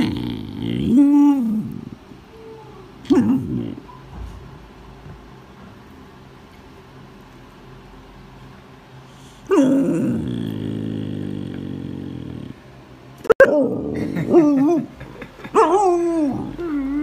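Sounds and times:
puppy growling: 0.0 - 4.0, 9.4 - 17.0
puppy howling: 15.6 - 17.0.

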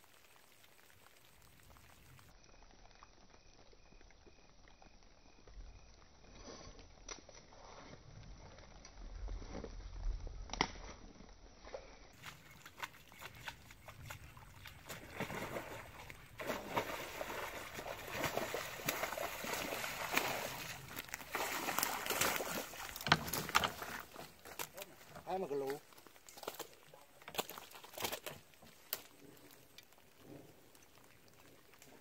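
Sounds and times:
fish splashing in water: 12.2 - 32.0.

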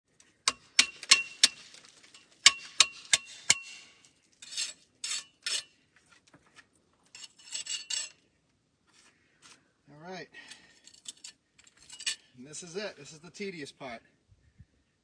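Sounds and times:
trowel clinking on stone: 0.5 - 5.7, 7.1 - 8.2, 10.8 - 12.3
trowel scraping through mortar: 2.4 - 5.8, 7.1 - 8.2.

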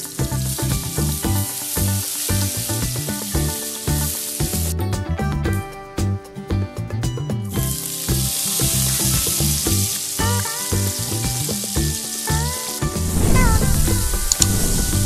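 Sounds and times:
hot oil sizzling: 0.0 - 5.0, 7.5 - 15.0
background music with beat: 0.0 - 15.0.

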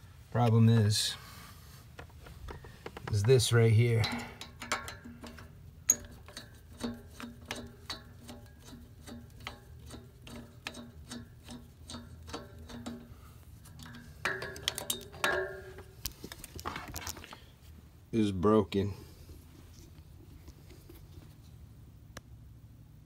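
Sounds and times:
metal handle scraping: 0.8 - 17.4
screwdriver metallic ticks: 4.0 - 13.1, 13.7 - 15.9.

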